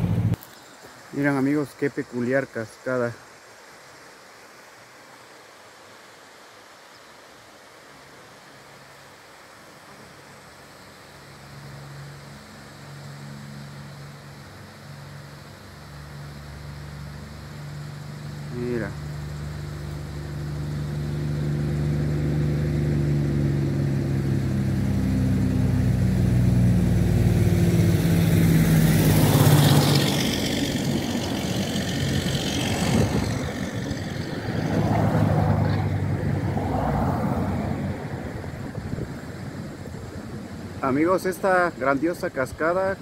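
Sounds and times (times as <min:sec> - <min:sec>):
vehicle engine hum passing: 0:00.0 - 0:00.4, 0:10.0 - 0:41.6
tyre and road noise: 0:00.0 - 0:00.9, 0:16.8 - 0:41.5.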